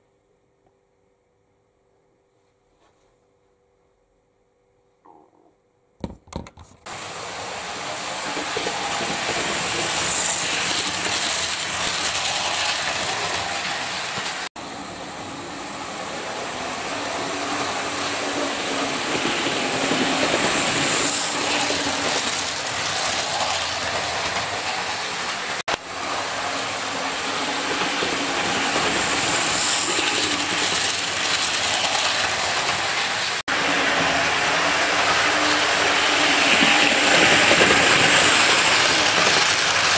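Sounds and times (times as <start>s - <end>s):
model train motors whirring: 7.1s - 14.5s, 19.1s - 33.4s.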